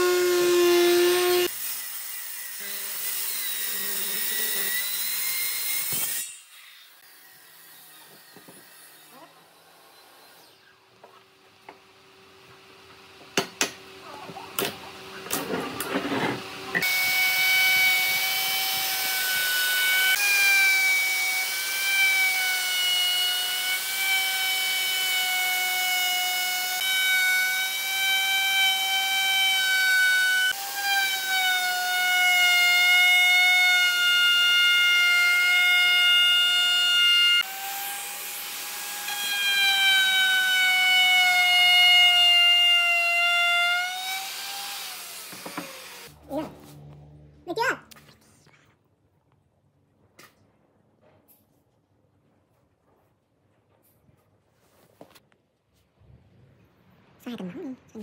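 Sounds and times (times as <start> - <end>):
electric router whining: 0.0 - 6.0, 14.7 - 32.0, 32.9 - 47.3.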